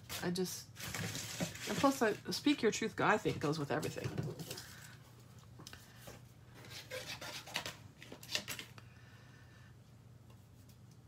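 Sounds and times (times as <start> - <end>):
paper rustling: 0.8 - 2.3
steady low hum: 7.7 - 11.0.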